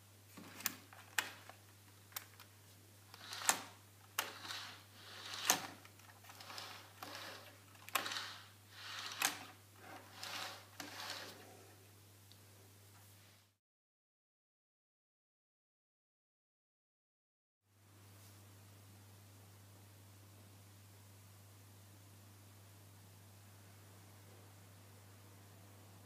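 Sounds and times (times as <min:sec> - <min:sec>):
model train wheels rolling on rails: 0:03.1 - 0:11.5.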